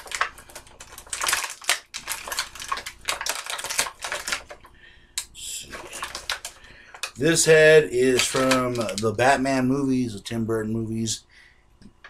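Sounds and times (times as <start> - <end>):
plastic packaging crinkling: 0.0 - 4.8, 5.6 - 9.5.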